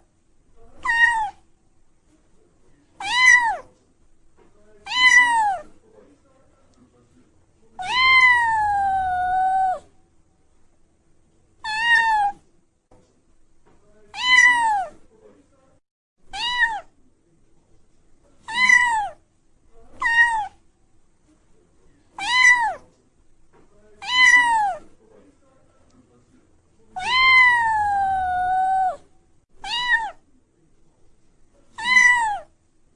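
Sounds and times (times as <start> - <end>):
kitten meowing: 0.8 - 1.4, 3.0 - 3.7, 4.9 - 5.7, 7.8 - 9.9, 11.6 - 12.4, 14.2 - 14.9, 16.3 - 16.9, 18.5 - 19.2, 20.0 - 20.6, 22.2 - 22.8, 24.0 - 24.8, 27.0 - 29.0, 29.6 - 30.2, 31.8 - 32.5.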